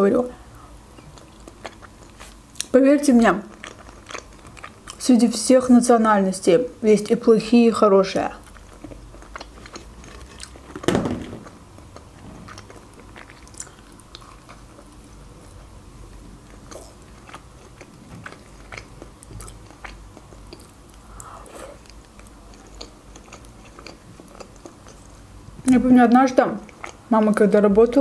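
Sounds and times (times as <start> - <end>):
chewing with crunches: 0.5 - 2.8, 3.4 - 5.1, 8.3 - 25.3, 26.6 - 27.4
biting crunchy onion ring: 3.5 - 5.0, 8.5 - 10.8.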